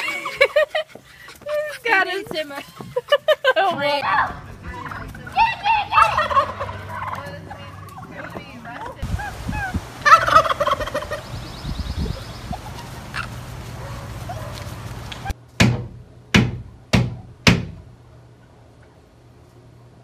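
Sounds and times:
turkeys gobbling: 0.0s - 15.4s.

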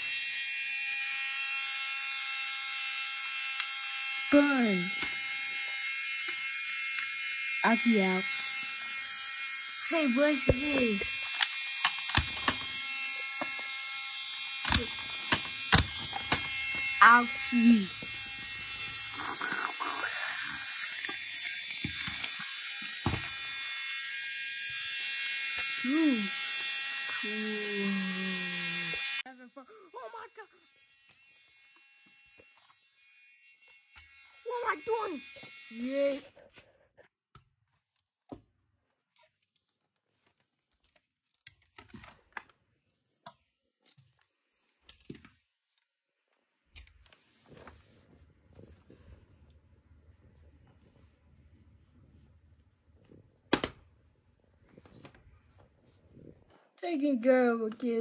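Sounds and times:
toys clicking on plastic: 10.5s - 12.7s, 14.6s - 16.5s.

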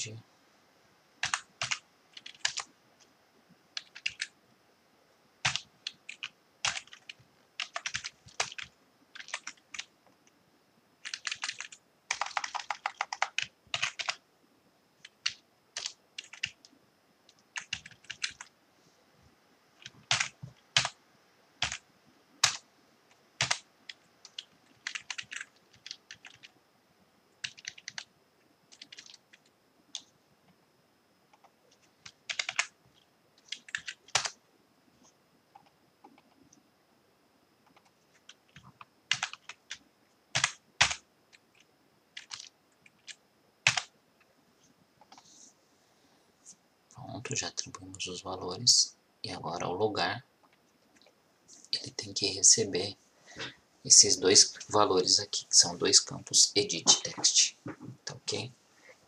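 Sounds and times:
computer keyboard typing: 1.2s - 2.7s, 3.8s - 4.3s, 5.4s - 9.9s, 11.0s - 14.2s, 15.0s - 18.5s, 19.8s - 21.0s, 21.6s - 21.8s, 22.4s - 22.6s, 23.4s - 26.6s, 27.4s - 28.1s, 28.7s - 30.1s, 31.3s - 34.4s, 37.6s - 43.9s.

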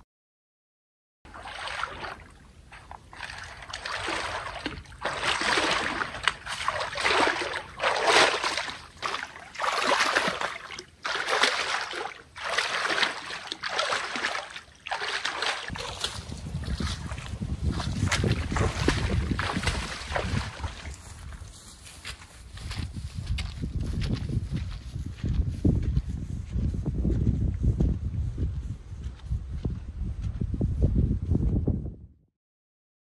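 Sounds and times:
person wading through water: 1.3s - 23.5s.

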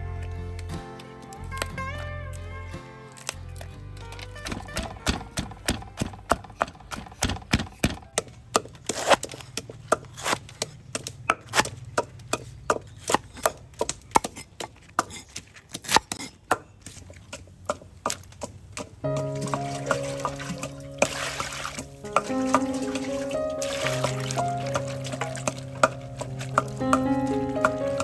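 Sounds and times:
knife chopping on wooden board: 4.4s - 16.7s, 25.4s - 28.0s.

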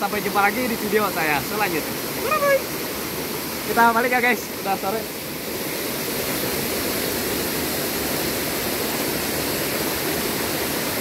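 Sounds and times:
stream flowing over rocks: 0.0s - 11.0s.

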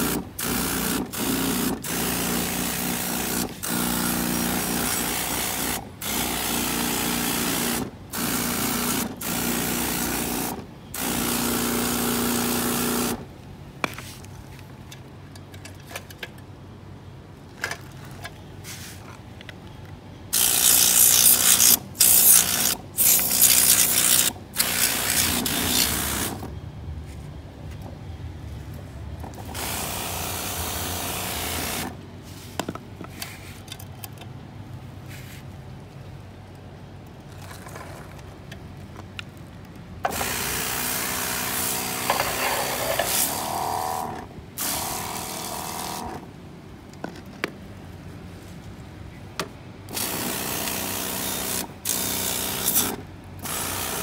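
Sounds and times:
spray gun blasting water: 0.0s - 13.2s, 20.4s - 26.5s, 29.5s - 31.9s, 40.1s - 46.1s, 49.9s - 54.0s.

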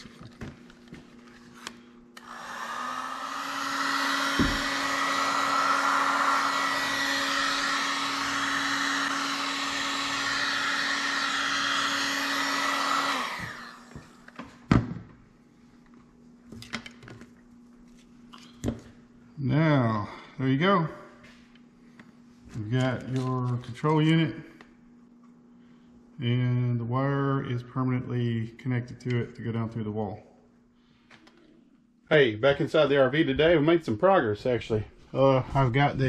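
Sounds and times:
heat gun fan blowing: 0.0s - 14.8s
knock: 4.4s - 4.7s.

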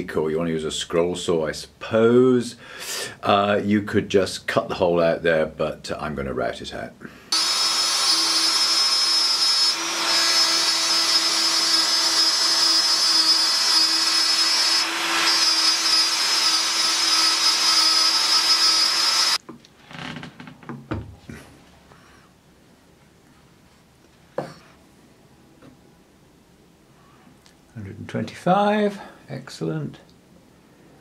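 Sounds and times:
router whining cutting wood: 7.3s - 19.4s.

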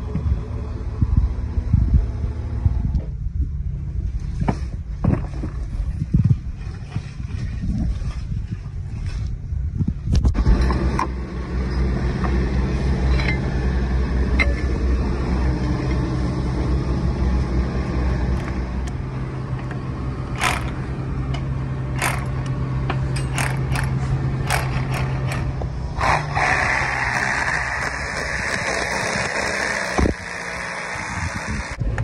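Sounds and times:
sharp clicks and knocks: 18.4s - 25.8s
rotary hammer chipping concrete: 20.4s - 20.8s, 22.0s - 22.4s, 23.2s - 31.8s.

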